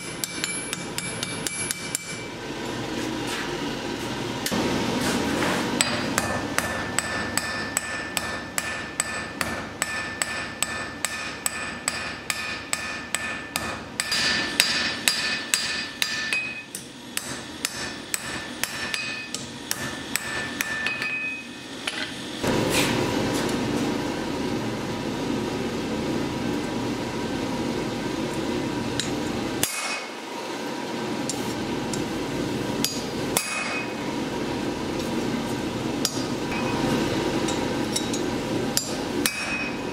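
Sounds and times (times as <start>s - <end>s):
hammer striking steel on anvil: 0.0s - 2.3s, 5.8s - 22.2s, 29.0s - 30.2s, 32.8s - 34.0s, 36.0s - 36.8s, 37.4s - 39.9s.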